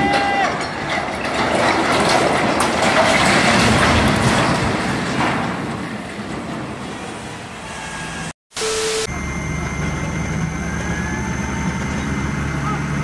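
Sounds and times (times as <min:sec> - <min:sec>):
rumble of collapsed roof frame: 0:00.0 - 0:07.2
diesel engine humming: 0:07.0 - 0:13.0
short tone: 0:07.7 - 0:12.8.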